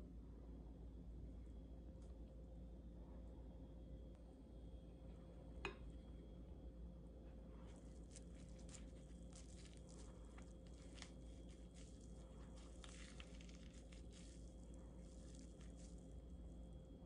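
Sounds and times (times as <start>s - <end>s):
pomegranate crackling and squishing: 7.5s - 17.0s.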